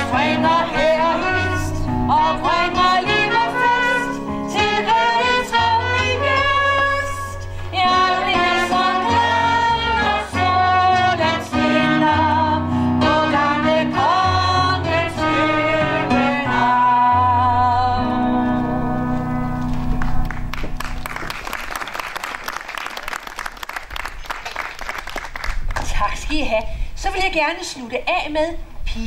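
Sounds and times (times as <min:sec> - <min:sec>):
woman singing with vibrato: 0:00.0 - 0:18.5
piano accompaniment: 0:00.0 - 0:21.9.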